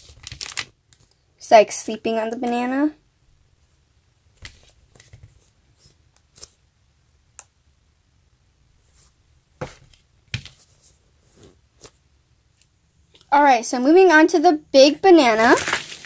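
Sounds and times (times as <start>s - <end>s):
hands handling foam toys: 15.0s - 16.0s.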